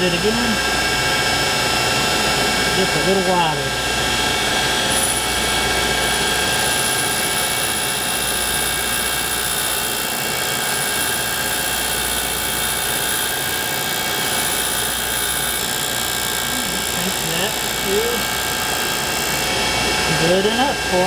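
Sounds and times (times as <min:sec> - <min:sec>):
grinding wheel whining: 0:00.0 - 0:21.0
grinding hiss: 0:04.6 - 0:21.0.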